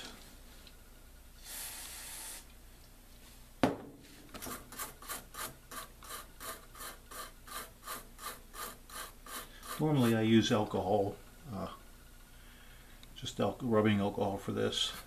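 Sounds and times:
spray hiss: 1.4 - 2.5
brush scrubbing circuit board: 4.7 - 10.3.

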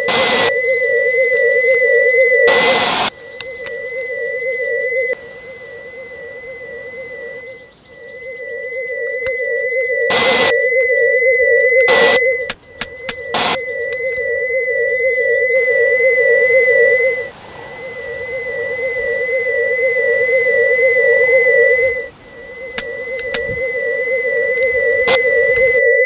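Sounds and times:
static-like noise bursts: 0.0 - 0.6, 1.3 - 4.1, 5.0 - 7.8, 10.1 - 10.5, 13.3 - 13.6, 15.6 - 25.8
warbling theremin-style electronic tone: 0.0 - 26.0
sharp clicks: 11.8 - 14.3, 22.7 - 23.7, 24.6 - 25.8.

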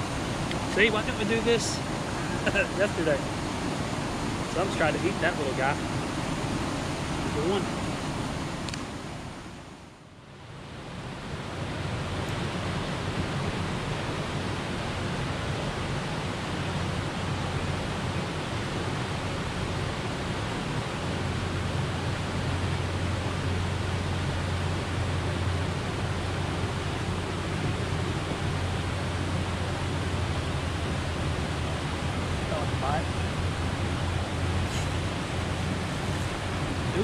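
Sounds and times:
wind on microphone: 0.0 - 9.7, 10.4 - 37.0.

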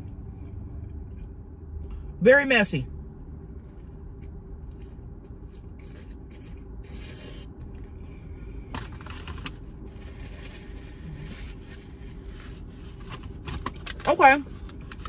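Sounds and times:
low hum: 0.0 - 13.8
close-up chewing and crunching: 3.4 - 8.0.

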